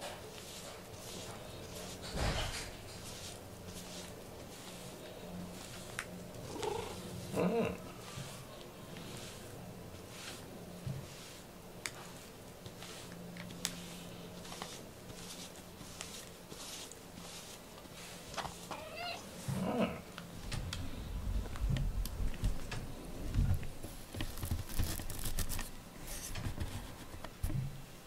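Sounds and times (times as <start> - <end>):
cat purring: 6.3 - 8.0.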